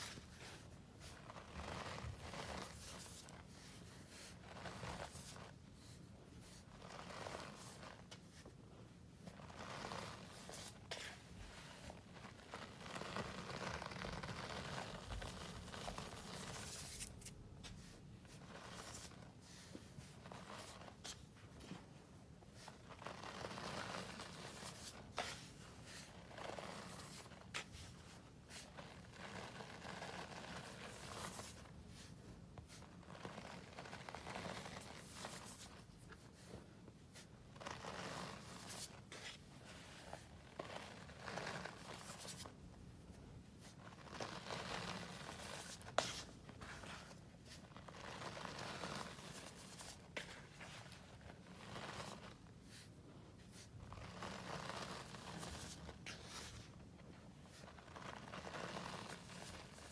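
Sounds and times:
powder crunching and rustling: 0.0 - 8.4, 22.6 - 32.1, 32.7 - 36.5, 43.6 - 52.9, 53.5 - 56.8, 57.4 - 59.9.

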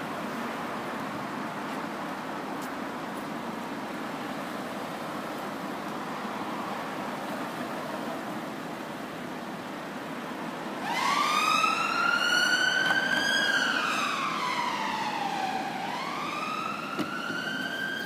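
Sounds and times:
road noise: 0.0 - 18.0
emergency vehicle siren wailing: 10.4 - 18.0.

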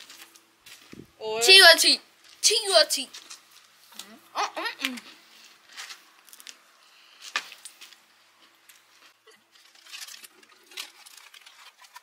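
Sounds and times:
snack packaging rustling: 7.5 - 12.0.

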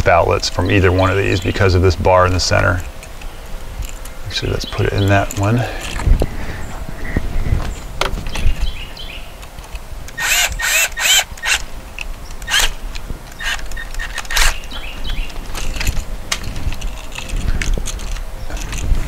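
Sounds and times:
handling noise: 0.0 - 19.0.

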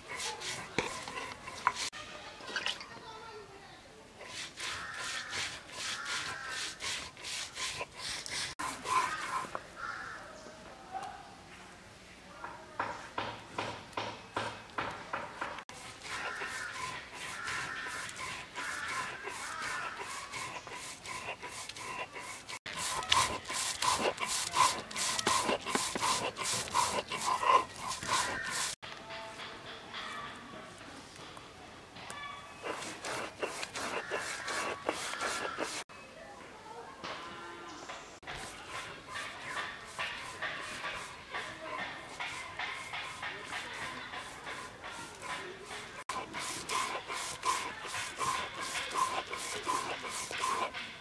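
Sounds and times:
stone scraping on stone: 0.0 - 3.0, 4.2 - 10.0, 14.8 - 28.8, 32.5 - 35.9, 38.2 - 51.0.

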